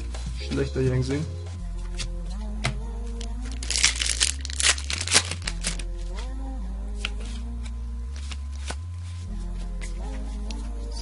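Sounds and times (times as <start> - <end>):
foil wrapper crinkling and tearing: 3.5 - 5.9.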